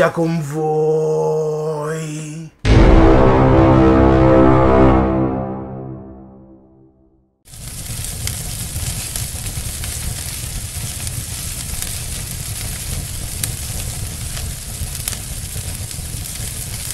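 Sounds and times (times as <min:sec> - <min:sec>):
fire crackles: 0:07.5 - 0:16.9
fire rumbling and hissing: 0:07.5 - 0:16.9.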